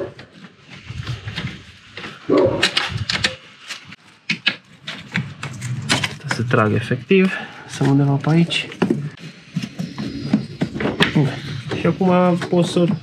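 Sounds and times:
plastic clips and tools clicking: 2.4 - 6.5.

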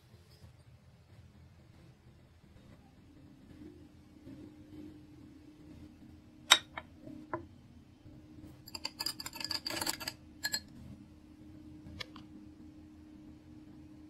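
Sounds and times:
spoon clinking against glass: 6.5 - 6.8, 8.7 - 10.7.

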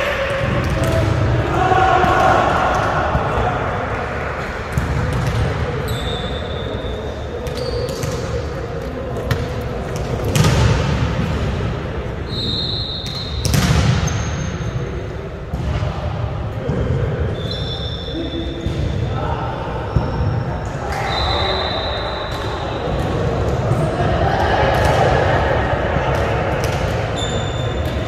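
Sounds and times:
volleyballs thudding on gym floor: 9.2 - 11.6, 13.4 - 14.1, 26.1 - 27.1.

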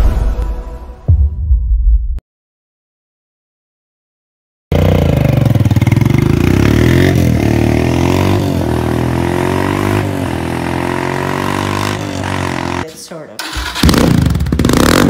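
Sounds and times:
motorcycle engine accelerating: 4.7 - 15.0.

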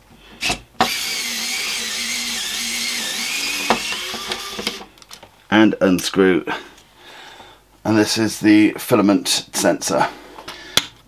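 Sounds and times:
electric screwdriver whirring: 0.8 - 4.9.

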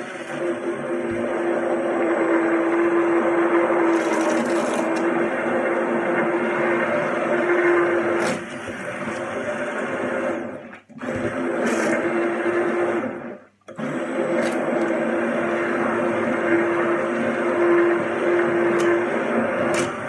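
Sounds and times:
immersion blender motor hum: 0.0 - 20.0.

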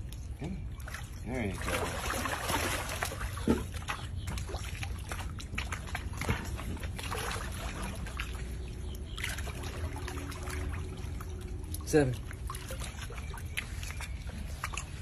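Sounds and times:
steady low hum: 0.0 - 15.0
water sloshing and trickling: 0.0 - 15.0.

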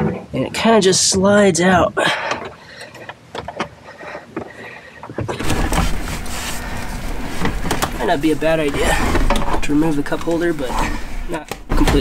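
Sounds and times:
plastic engine cover sliding: 5.3 - 12.0.

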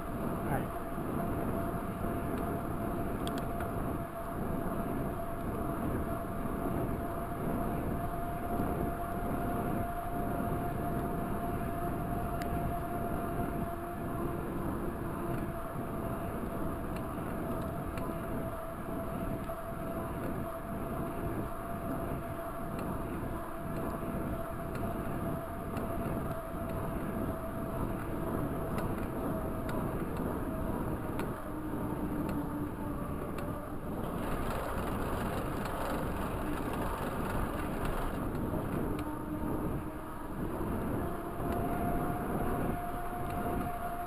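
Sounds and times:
wind: 0.0 - 44.0
thin whine: 33.8 - 39.8
bike tyres rumbling on pavement: 34.0 - 38.9.

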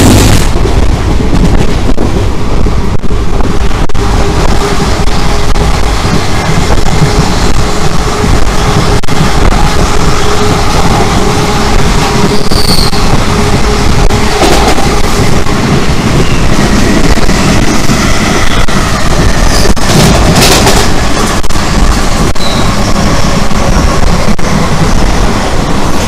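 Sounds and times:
freight train rushing past: 0.0 - 26.0.

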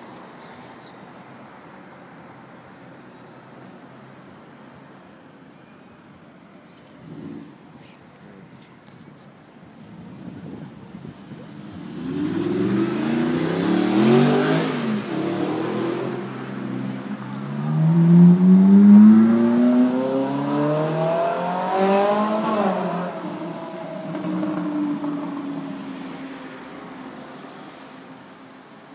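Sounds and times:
sports car engines accelerating: 11.1 - 28.4.

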